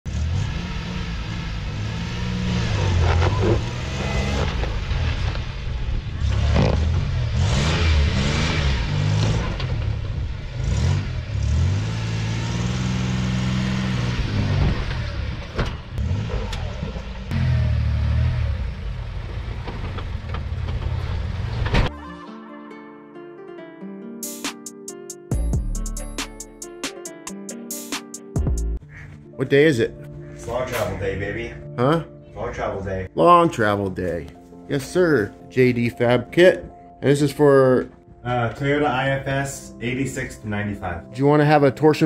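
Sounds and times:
truck engine revving: 0.1s - 21.9s.

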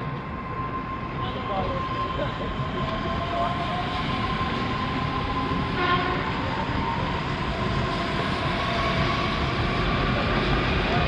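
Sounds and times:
electric train rolling past: 0.0s - 11.0s
train horn toot: 5.7s - 6.4s.

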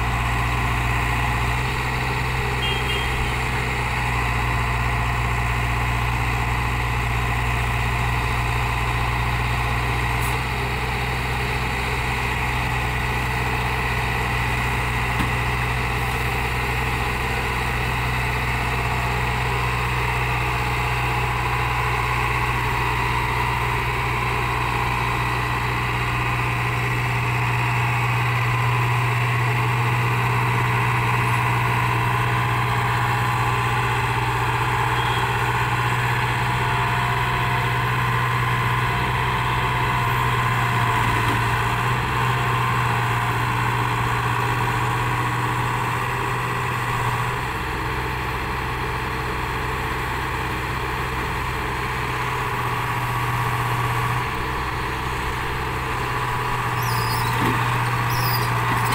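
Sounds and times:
excavator diesel engine running: 0.0s - 58.9s.

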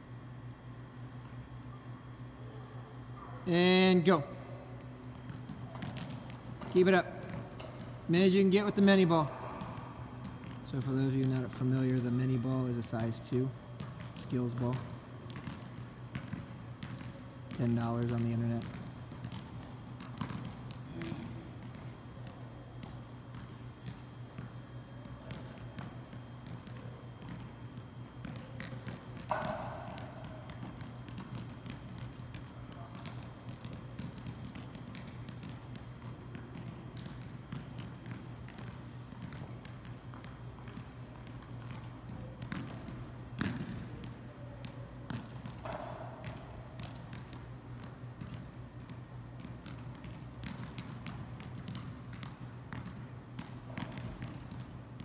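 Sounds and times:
low steady hum: 0.0s - 55.0s
foot tapping soccer ball: 3.5s - 55.0s.

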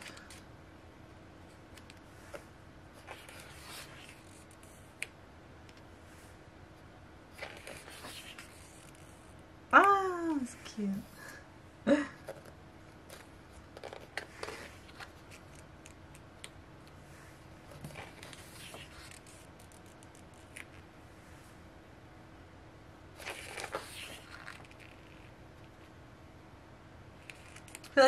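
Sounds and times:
paper pages rustling: 1.8s - 4.8s, 7.3s - 9.2s, 12.3s - 16.3s, 17.6s - 20.9s, 23.2s - 25.9s, 27.2s - 28.0s
page turning: 3.0s - 4.8s, 7.4s - 9.2s, 13.0s - 16.2s, 17.7s - 20.9s, 23.2s - 25.8s, 27.2s - 28.0s.

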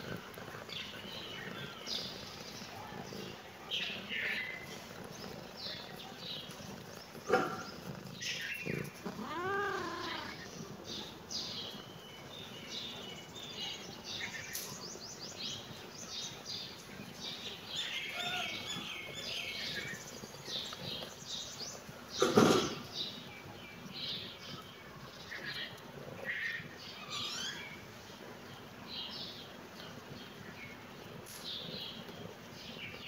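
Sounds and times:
small birds chirping: 0.0s - 33.0s
cat meowing: 9.0s - 10.5s.

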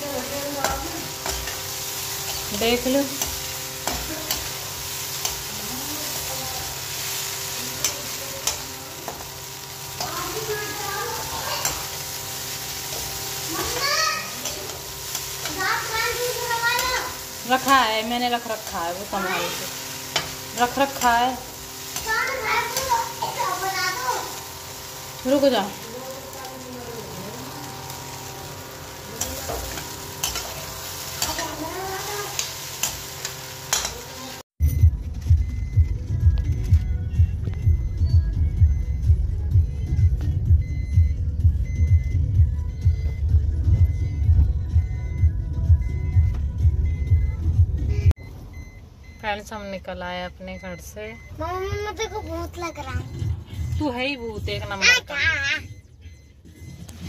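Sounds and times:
food sizzling in a pan: 0.0s - 34.6s
spatula clinking against pan: 32.4s - 34.0s.

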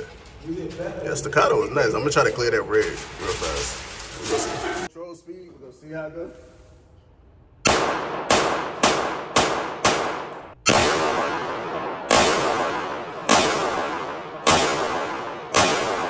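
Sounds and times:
pistol shots echoing indoors: 7.6s - 16.0s.

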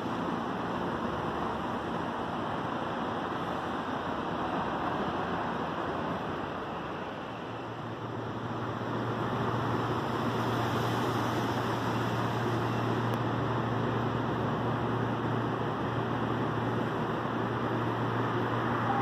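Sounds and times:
background noise wash: 0.0s - 19.0s
electric train rumble: 0.0s - 19.0s
electric train humming: 11.6s - 19.0s.

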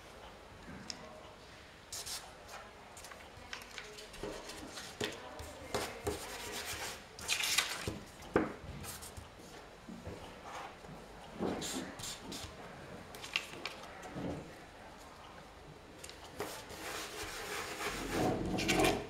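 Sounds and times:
paper handled by hand: 13.1s - 14.1s.

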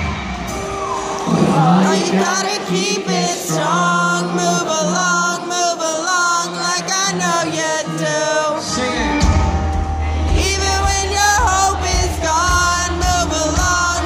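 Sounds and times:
drums: 0.0s - 1.9s, 8.8s - 14.0s
person singing: 0.9s - 14.0s
heavy bass: 9.1s - 14.0s.

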